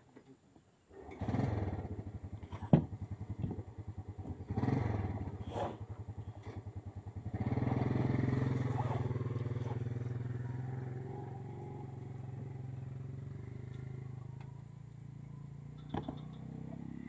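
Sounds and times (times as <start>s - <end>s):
small engine running: 3.4s - 14.7s.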